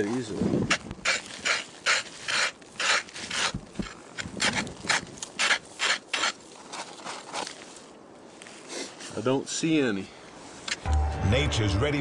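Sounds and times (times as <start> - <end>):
scraping on ice and snow: 0.0 - 9.2.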